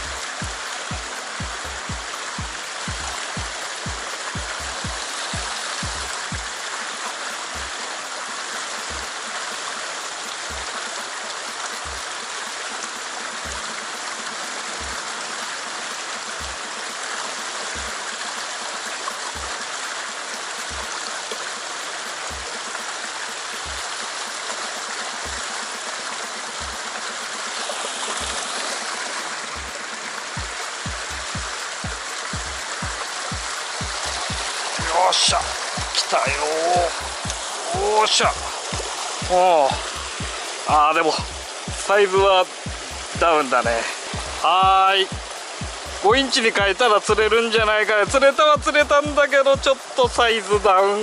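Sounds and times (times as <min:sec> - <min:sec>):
soft low thump: 0:00.0 - 0:06.6, 0:30.4 - 0:40.4, 0:45.2 - 0:46.1
stream water rushing over rocks: 0:00.0 - 0:51.0.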